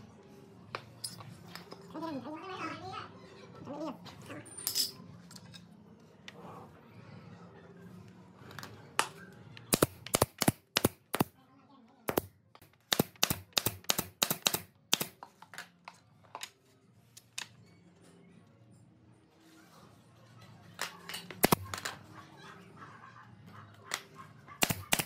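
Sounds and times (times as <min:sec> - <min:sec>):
nail gun shots: 0:09.7 - 0:11.3, 0:12.1 - 0:15.2, 0:21.4 - 0:21.8, 0:24.6 - 0:25.0.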